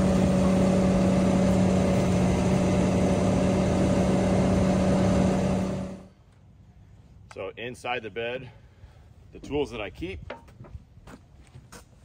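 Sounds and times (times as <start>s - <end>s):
crane drive humming: 0.0s - 6.1s
diesel engine running: 0.0s - 6.1s.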